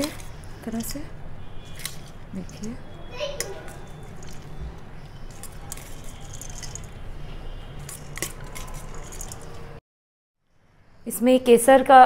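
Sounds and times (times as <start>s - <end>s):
metal spoon scraping colander: 3.6s - 9.7s.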